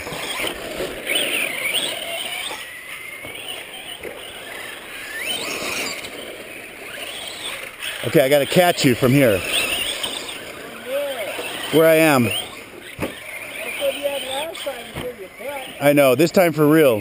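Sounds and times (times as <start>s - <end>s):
rc truck motor whining: 0.0s - 17.0s.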